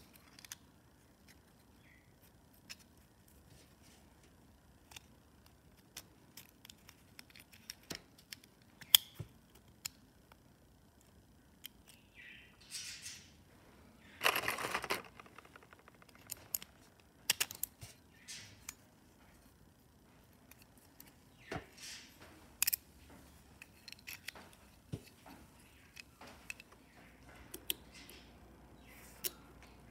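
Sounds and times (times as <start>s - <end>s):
small metal clicks and scrapes: 4.8s - 9.1s, 14.2s - 17.8s, 23.6s - 24.7s.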